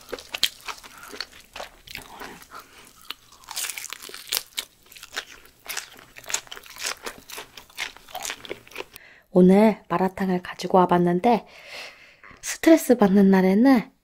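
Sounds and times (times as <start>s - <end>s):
crunching and chewing food: 0.0s - 9.0s.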